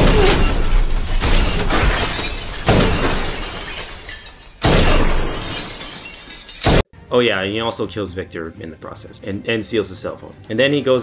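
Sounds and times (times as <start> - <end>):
glass shattering: 0.0 - 6.9.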